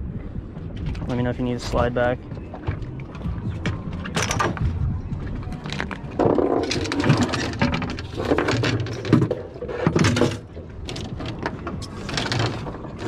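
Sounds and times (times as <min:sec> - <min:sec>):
wooden handle clattering against rods: 0:02.6 - 0:04.7, 0:05.6 - 0:13.0.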